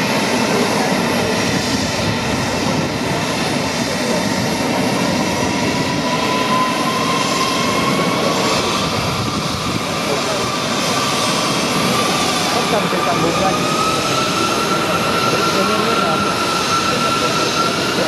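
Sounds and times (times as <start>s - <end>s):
jet engines rushing: 0.0s - 18.0s.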